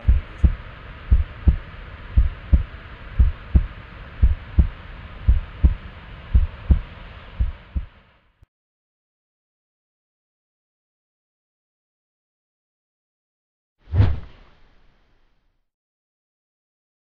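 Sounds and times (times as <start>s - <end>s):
heartbeat thumps: 0.0s - 8.0s
steady hiss: 0.0s - 8.2s.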